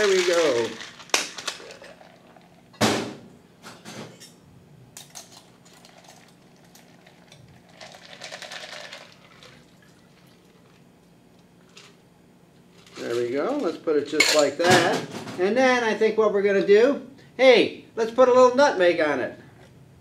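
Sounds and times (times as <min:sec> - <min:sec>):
ice and liquid being strained: 0:00.0 - 0:02.7, 0:05.1 - 0:10.9, 0:12.7 - 0:13.7.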